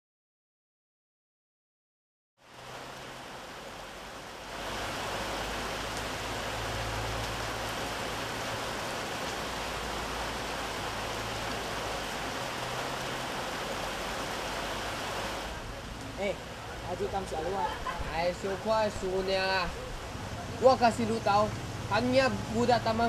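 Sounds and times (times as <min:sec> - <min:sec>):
steady rain falling: 0:02.4 - 0:23.0.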